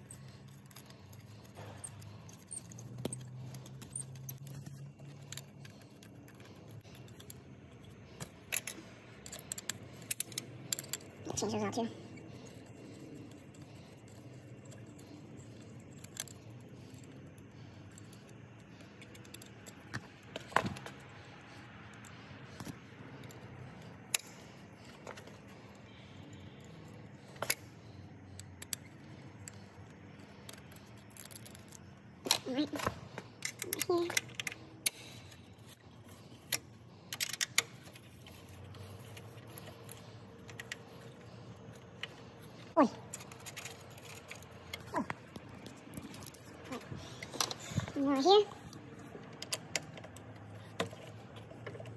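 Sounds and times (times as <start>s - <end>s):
metal bolts and washers clicking: 0.0s - 21.1s, 21.9s - 48.0s
low steady background noise: 0.0s - 51.9s.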